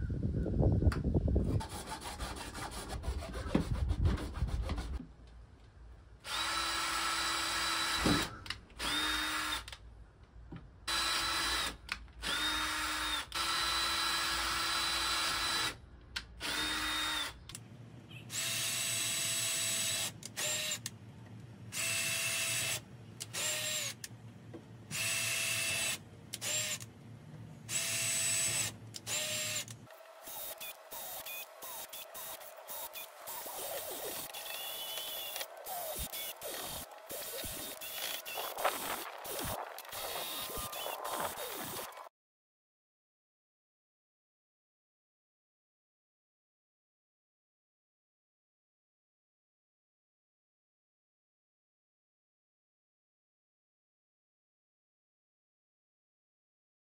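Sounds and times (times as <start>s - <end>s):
cordless drill whining: 6.2s - 9.7s, 10.9s - 15.8s, 21.7s - 24.1s, 24.9s - 26.9s, 27.7s - 42.0s.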